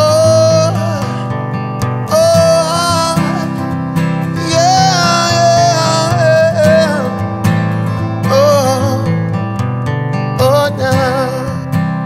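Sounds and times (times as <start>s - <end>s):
strummed acoustic guitar: 0.0s - 12.0s.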